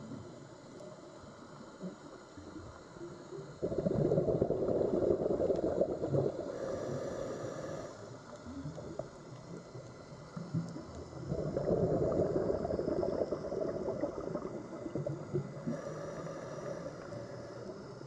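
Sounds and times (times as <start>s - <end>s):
low murmur of water: 0.0s - 18.0s
diver's exhaled bubbles rushing: 3.6s - 6.6s, 11.1s - 15.7s.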